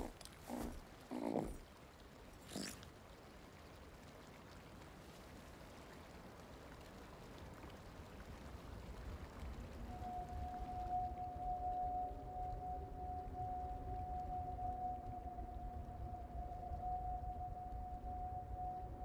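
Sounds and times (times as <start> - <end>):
creature cooing: 0.0 - 1.6, 2.4 - 2.8
faint background hum: 0.0 - 7.1.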